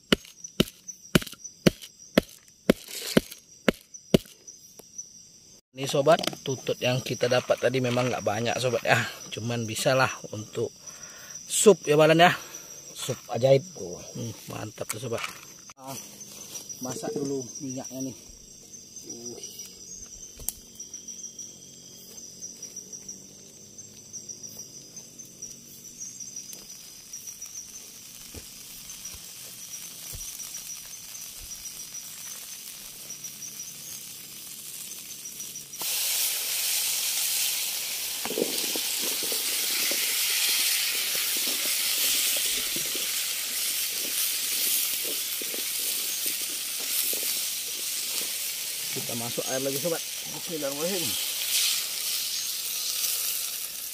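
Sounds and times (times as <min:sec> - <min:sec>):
insects chirping: 0:00.0 - 0:53.9
cooking oil sizzling and spattering: 0:25.4 - 0:53.9.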